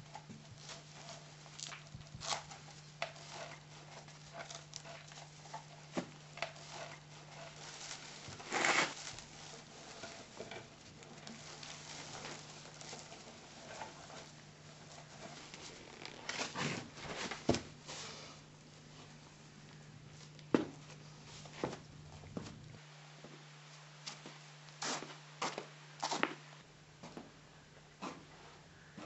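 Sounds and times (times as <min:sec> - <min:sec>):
steady low hum: 0:00.0 - 0:29.0
rustling in straw: 0:00.1 - 0:20.4.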